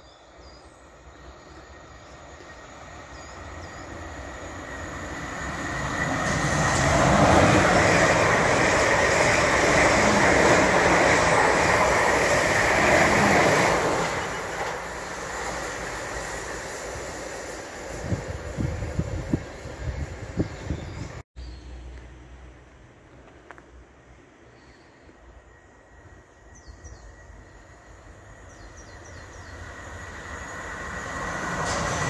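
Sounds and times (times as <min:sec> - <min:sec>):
electric train passing at speed: 0:00.0 - 0:32.0
wheel and rail noise: 0:00.8 - 0:21.2, 0:27.0 - 0:32.0.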